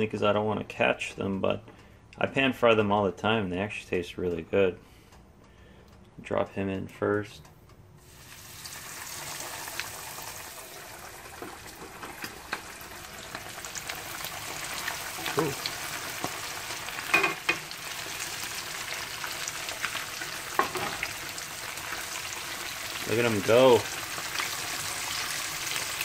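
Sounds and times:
fish deep-frying in oil: 0:08.1 - 0:26.0.

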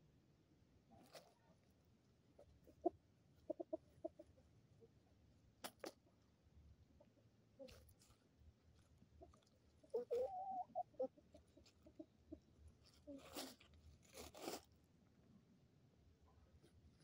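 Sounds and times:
chickens scratching in dry leaves: 0:01.0 - 0:01.7, 0:12.8 - 0:14.7
chicken clucking: 0:02.3 - 0:04.5, 0:09.2 - 0:13.4.

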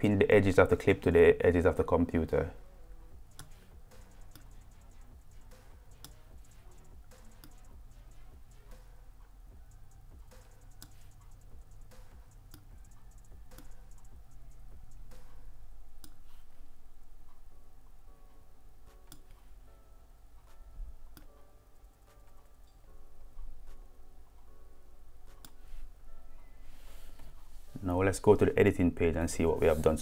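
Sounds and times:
computer mouse clicking: 0:03.3 - 0:08.9, 0:09.9 - 0:15.4.

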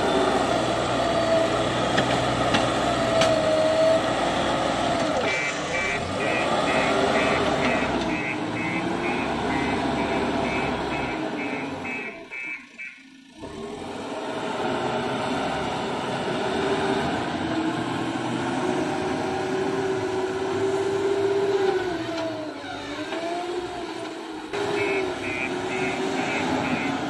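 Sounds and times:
diesel engine under load: 0:00.0 - 0:27.0
high beeping: 0:05.4 - 0:13.1.

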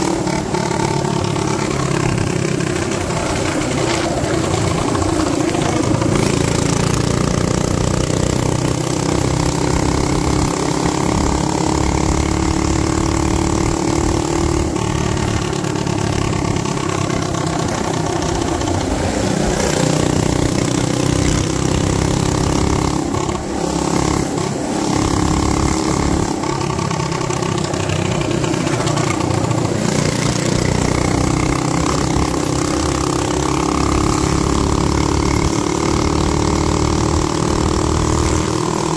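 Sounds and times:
minibike engine running at high revs: 0:00.0 - 0:38.9.

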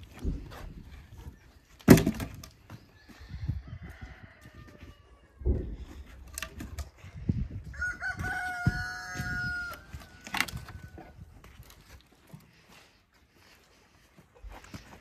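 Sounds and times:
heavy wooden thuds of logs: 0:01.7 - 0:02.8
rooster crowing: 0:03.0 - 0:05.5, 0:07.7 - 0:11.0.

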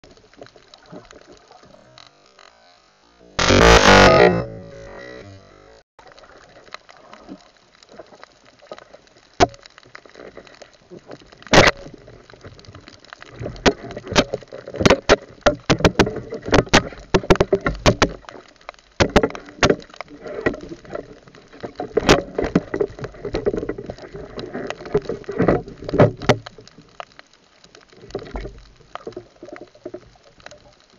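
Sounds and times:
underwater knocks and clicks: 0:06.2 - 0:30.9.

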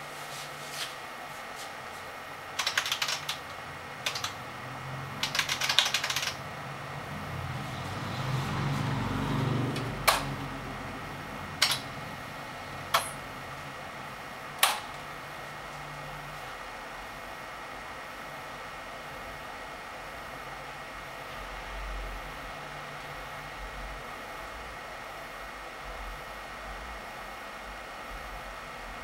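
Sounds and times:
keyboard key clicks: 0:04.1 - 0:04.4.

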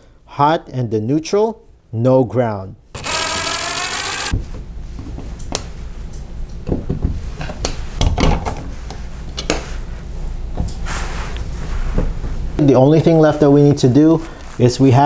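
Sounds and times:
cordless drill whirring: 0:03.0 - 0:04.4.

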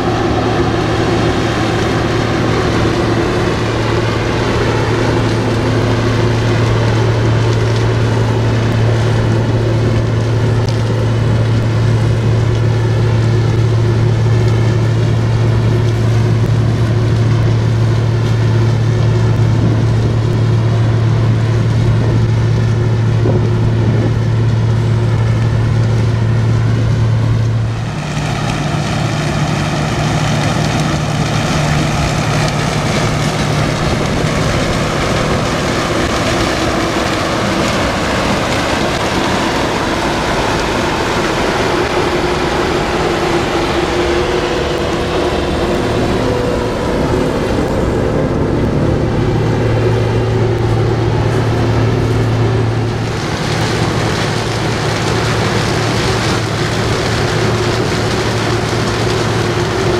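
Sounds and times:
combine harvester engine hum: 0:00.0 - 0:59.9.

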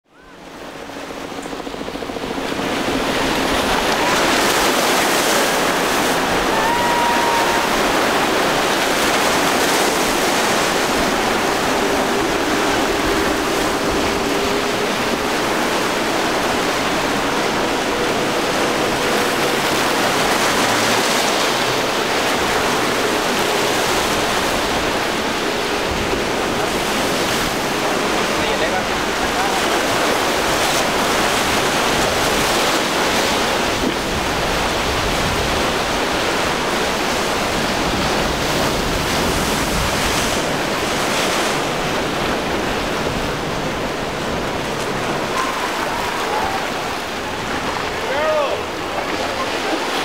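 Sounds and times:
faint outboard motors droning: 0:00.0 - 0:50.0
waves churning and breaking: 0:00.0 - 0:50.0.

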